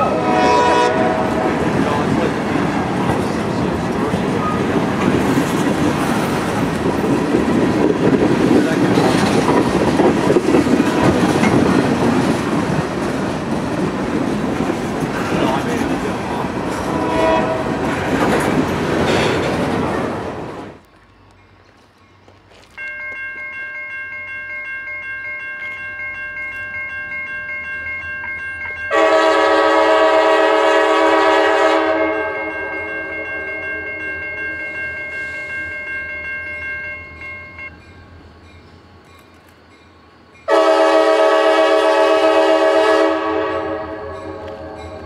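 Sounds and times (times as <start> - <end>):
train air horn blowing: 0.0 - 1.6, 16.8 - 17.9, 28.9 - 32.7, 40.5 - 44.8.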